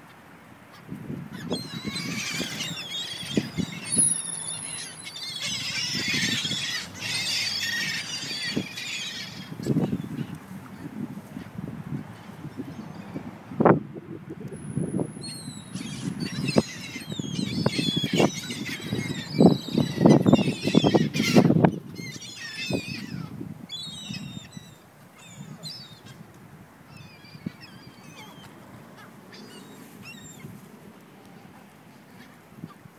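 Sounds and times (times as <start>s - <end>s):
low wind buffeting: 0.9s - 24.7s
gulls calling: 1.4s - 10.9s, 15.0s - 26.2s, 26.9s - 30.5s.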